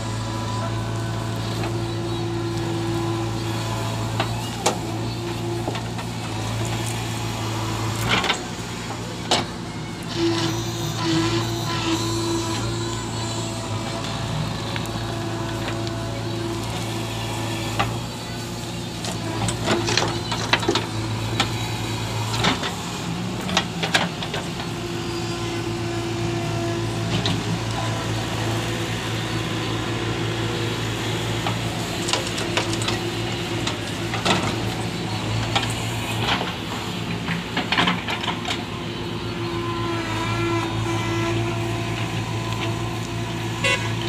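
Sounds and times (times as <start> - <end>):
diesel engine running under load: 0.0 - 44.0.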